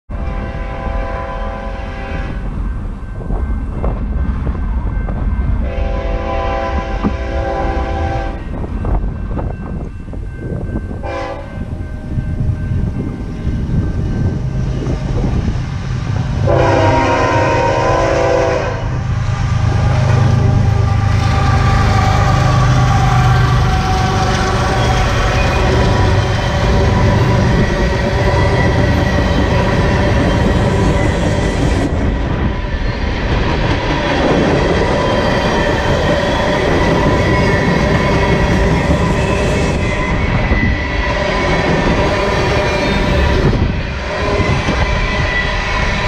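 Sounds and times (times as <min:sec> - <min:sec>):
train air horn blasts: 0:00.1 - 0:02.4, 0:05.6 - 0:08.5, 0:11.0 - 0:11.6, 0:16.4 - 0:27.7
diesel locomotive rumble: 0:00.1 - 0:46.0.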